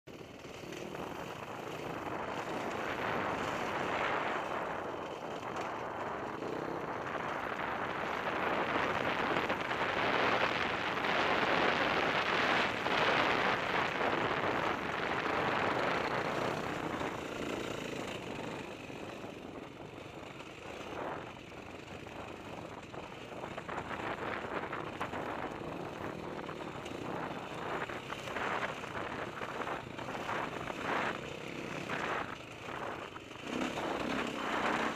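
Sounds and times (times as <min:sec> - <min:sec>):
dirt bike engine revving: 0:27.0 - 0:34.9.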